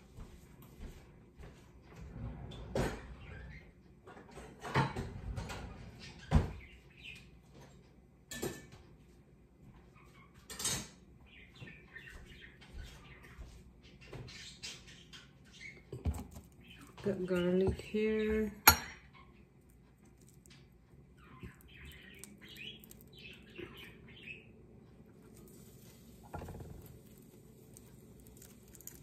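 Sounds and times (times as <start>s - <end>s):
dishes clattering: 8.3s - 8.8s, 18.6s - 19.2s.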